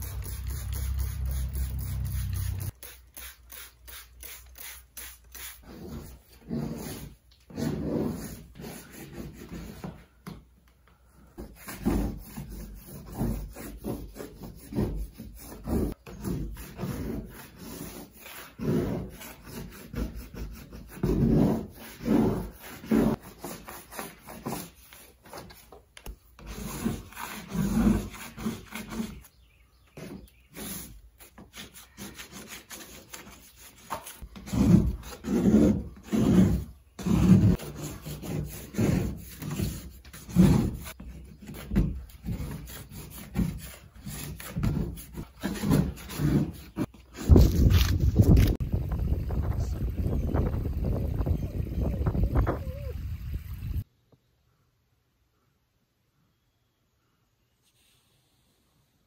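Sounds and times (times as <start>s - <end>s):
paper tearing off a wall: 26.4s - 29.3s, 30.0s - 48.6s.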